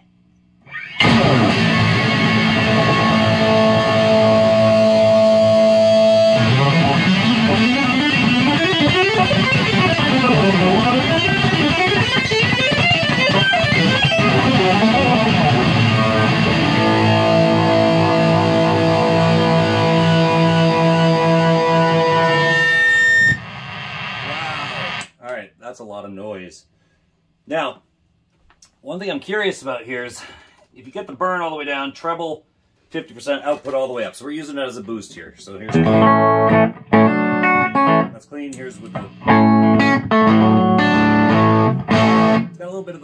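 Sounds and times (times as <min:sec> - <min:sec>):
heavily distorted electric guitar: 0:00.7 - 0:25.2, 0:35.7 - 0:42.6.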